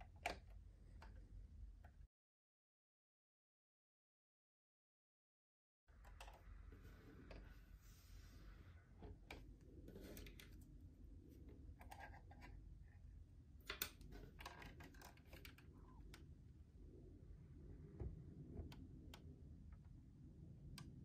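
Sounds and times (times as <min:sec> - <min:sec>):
low steady hum: 0:05.9 - 0:21.0.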